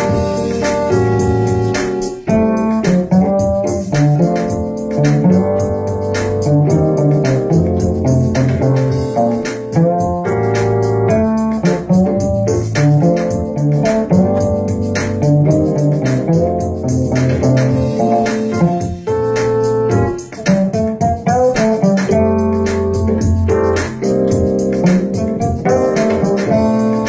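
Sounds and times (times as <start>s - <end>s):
cello plucked pizzicato: 0.0s - 27.0s
electronic keyboard chords: 0.0s - 27.0s.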